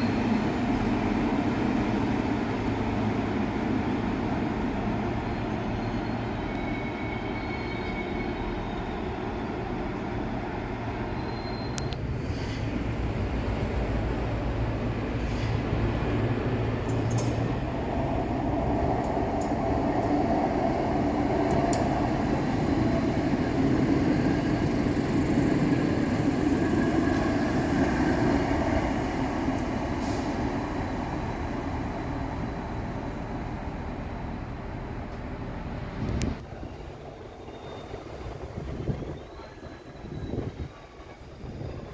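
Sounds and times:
tram passing on rails: 0.0s - 41.9s.

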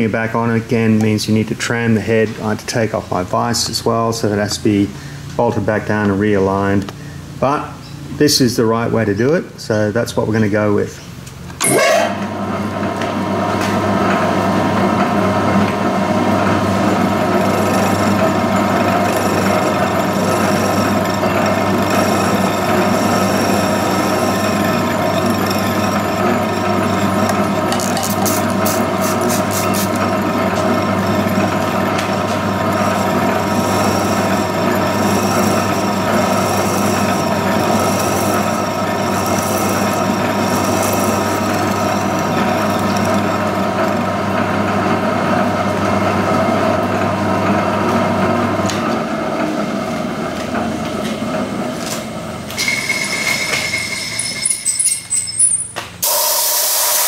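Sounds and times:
milling machine droning: 11.6s - 57.0s.

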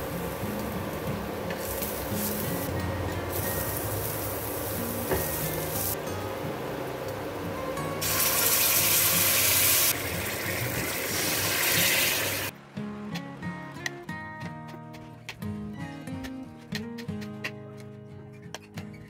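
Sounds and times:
garlic and onion sizzling in pan: 0.0s - 6.0s, 8.0s - 12.5s
background music: 0.0s - 18.1s.

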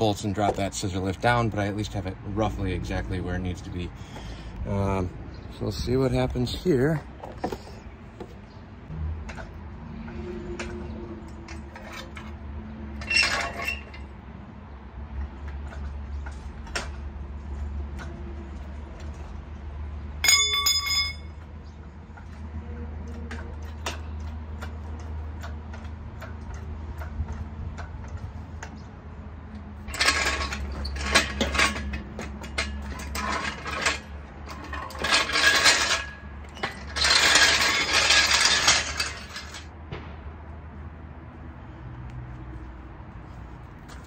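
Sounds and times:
metal clinks and rattles: 13.0s - 14.1s, 20.2s - 22.4s, 29.8s - 39.7s.

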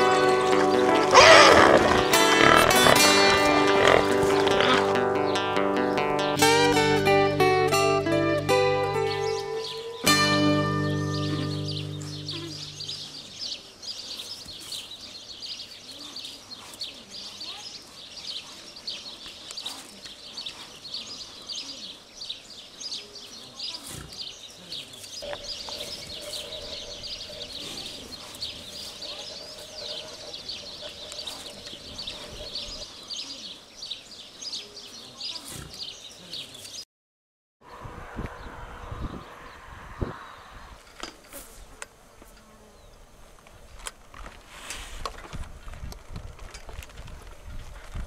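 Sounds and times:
small birds chirping: 0.0s - 5.6s, 8.8s - 36.8s.

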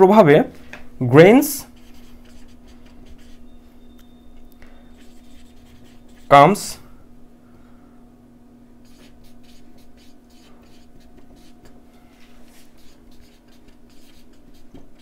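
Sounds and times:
steady low hum: 0.0s - 15.0s
marker scratching on whiteboard: 1.6s - 3.5s, 4.9s - 6.6s, 8.8s - 11.8s, 12.4s - 15.0s.

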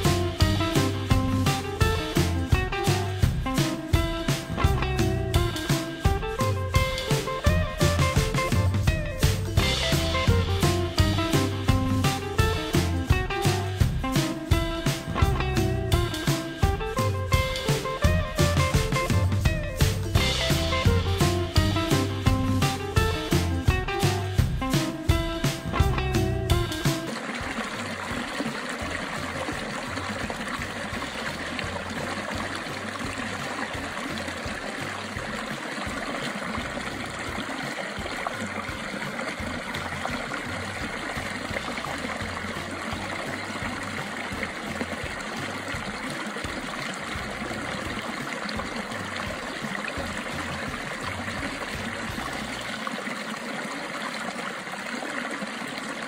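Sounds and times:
running water: 0.0s - 56.0s.

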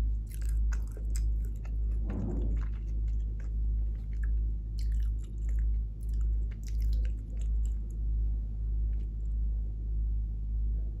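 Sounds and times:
pulsing low hum: 0.0s - 11.0s
chewing and mouth clicks: 0.2s - 8.1s, 8.9s - 9.4s.

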